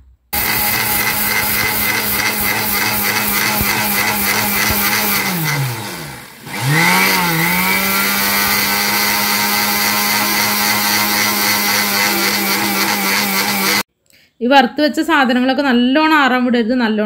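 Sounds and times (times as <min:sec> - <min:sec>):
mixer grinder motor grinding: 0:00.4 - 0:13.9.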